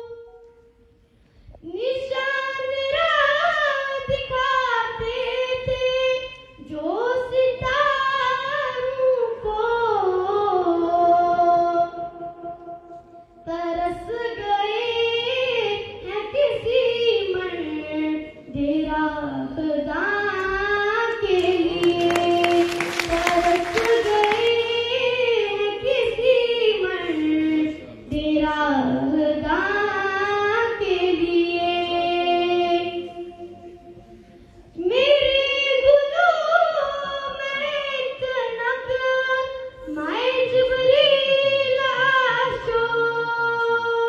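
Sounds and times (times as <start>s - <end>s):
person singing unaccompanied: 13.5s - 33.8s.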